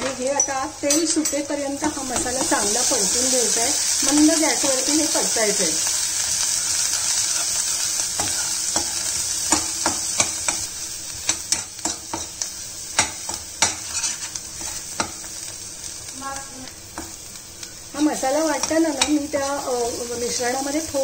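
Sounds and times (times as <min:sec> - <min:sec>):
paste sizzling in oil: 0:00.3 - 0:21.0
spatula scraping a pan: 0:05.9 - 0:15.5, 0:16.9 - 0:20.9.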